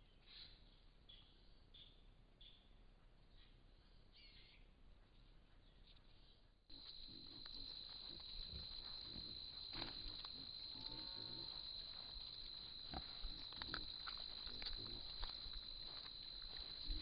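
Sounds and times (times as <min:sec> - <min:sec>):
soft rustles and ticks: 0:05.0 - 0:17.0
animal call: 0:06.7 - 0:17.0
high-pitched insect trill: 0:06.7 - 0:17.0.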